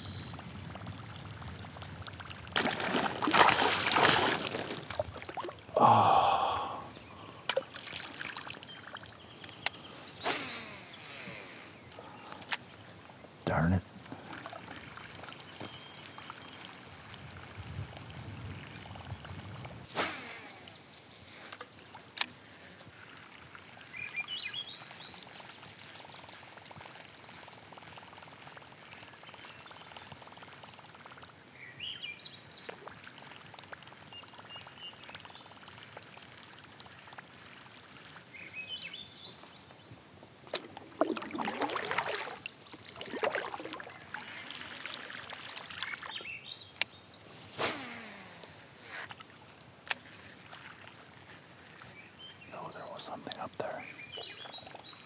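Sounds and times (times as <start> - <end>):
water lapping against hull: 0.3 - 12.5, 14.0 - 19.9, 32.4 - 46.6
paddle strokes through water: 0.4 - 12.1, 32.5 - 46.5, 47.3 - 52.4
short bird calls: 9.7 - 12.4.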